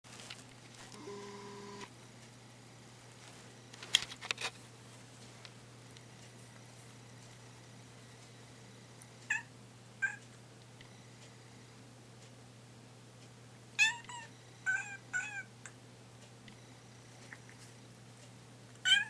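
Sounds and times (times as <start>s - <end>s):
cat meowing: 13.8s - 15.5s.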